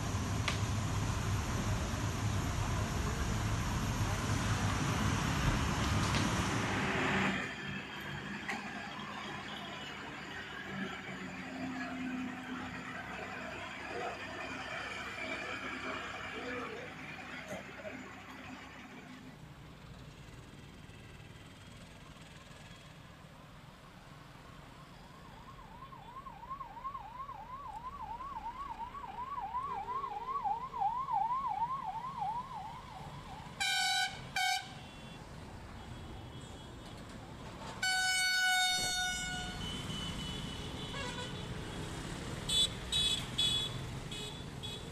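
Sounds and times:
road traffic noise: 0.0 - 44.9
vehicle horn blasts: 33.6 - 35.2, 37.8 - 41.5.

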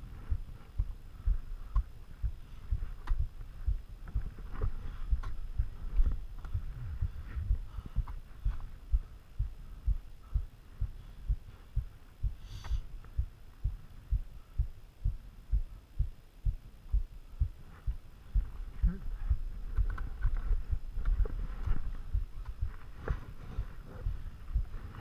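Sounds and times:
muffled low thumps on microphone: 0.0 - 25.0.

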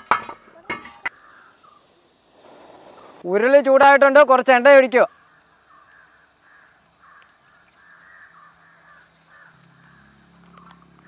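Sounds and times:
crow cawing: 1.1 - 1.8, 5.0 - 10.9.

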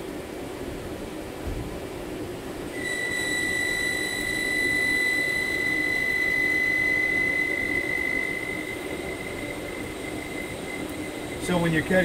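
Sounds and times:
machine hum: 0.0 - 12.0
lathe high whine: 2.7 - 12.0.

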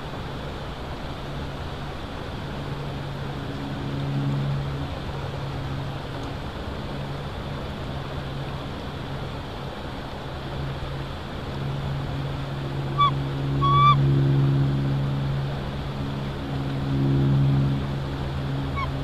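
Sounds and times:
distant engine drone: 0.0 - 19.0
short bird calls: 13.0 - 14.0, 18.8 - 19.0.

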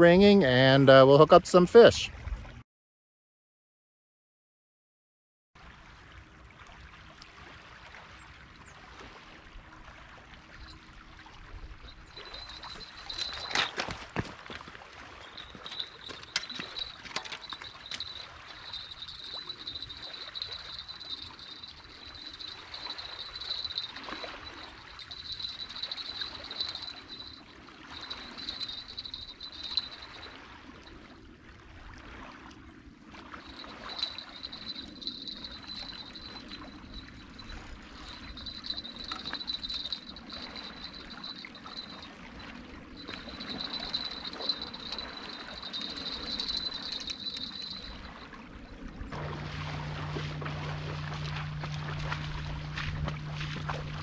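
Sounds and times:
small waves lapping on rocks: 49.1 - 54.0
high-pitched whine: 49.2 - 54.0.

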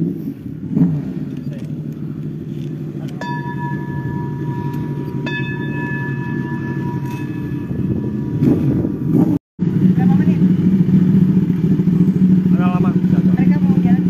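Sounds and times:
low rumble: 0.4 - 14.0
singing bowl ringing: 3.2 - 8.5.

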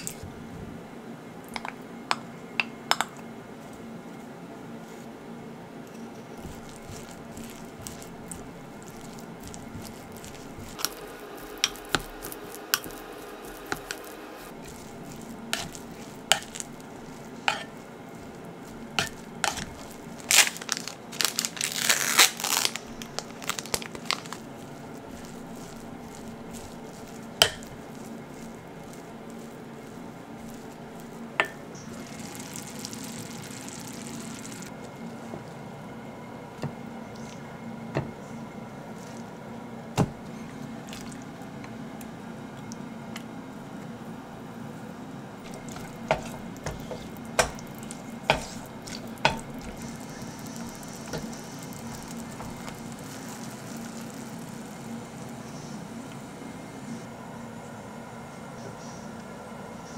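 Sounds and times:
patties sizzling in frying pan: 6.4 - 34.7, 45.4 - 55.4
plastic packet crinkling: 6.4 - 34.7, 45.5 - 55.0
utensil knocking against pot: 46.1 - 47.6.

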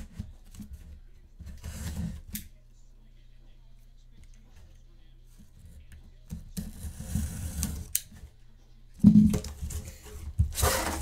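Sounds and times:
cardboard scraping and rustling: 9.3 - 11.0.

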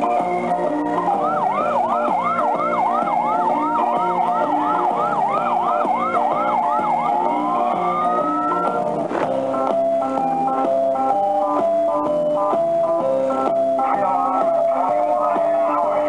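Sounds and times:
electronic siren yelp and wail: 0.0 - 8.9
organ-like music: 0.0 - 16.0.

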